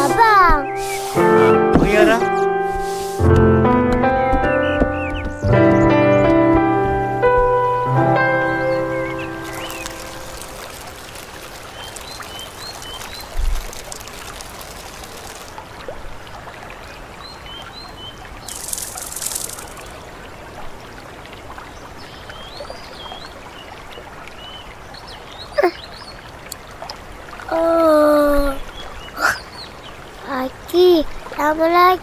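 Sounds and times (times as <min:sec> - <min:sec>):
short hiss: 0:00.8 - 0:01.4, 0:02.8 - 0:03.2
bird chirps: 0:04.4 - 0:06.3, 0:08.4 - 0:15.4
trickle of running water: 0:09.1 - 0:32.0.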